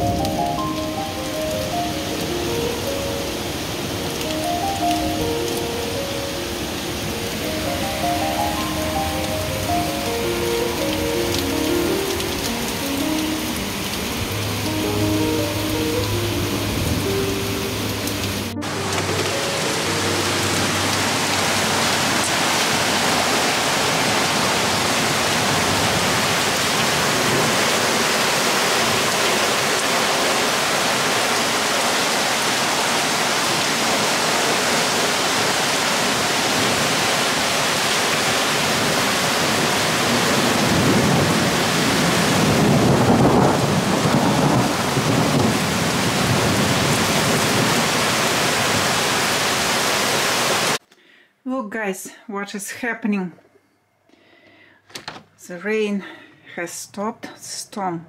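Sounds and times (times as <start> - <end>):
heavy rain pouring: 0.0 - 50.8
thunder rumbling: 38.8 - 48.8.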